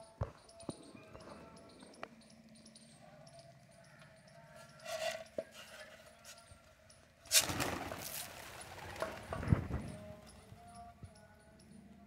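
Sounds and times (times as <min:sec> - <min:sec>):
pigeons wingbeats taking off: 0:07.3 - 0:10.2.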